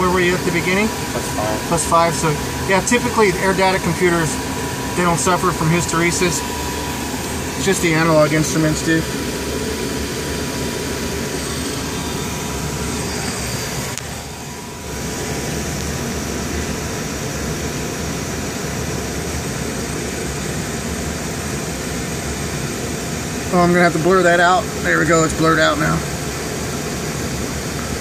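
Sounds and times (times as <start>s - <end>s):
fans whirring: 0.0s - 28.0s.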